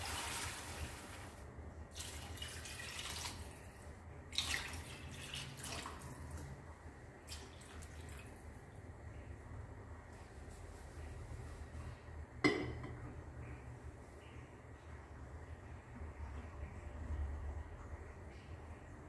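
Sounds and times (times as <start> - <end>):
water pouring into a pot: 0.0 - 6.5.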